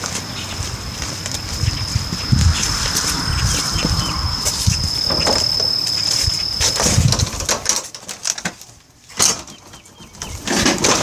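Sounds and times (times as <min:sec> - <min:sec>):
high-pitched insect tone: 0:00.4 - 0:07.8.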